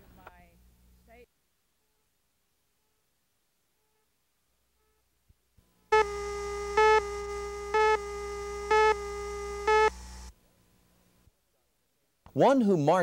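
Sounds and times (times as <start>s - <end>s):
steady buzzy tone: 4.8s - 11.1s
beeps: 5.9s - 10.0s
low hum: 5.9s - 10.4s.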